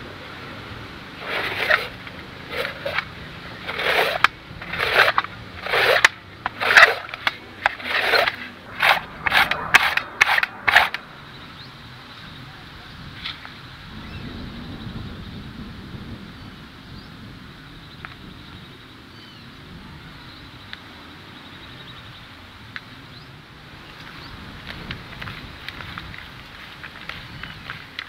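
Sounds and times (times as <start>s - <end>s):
papaya grated on metal grater: 1.2s - 11.0s.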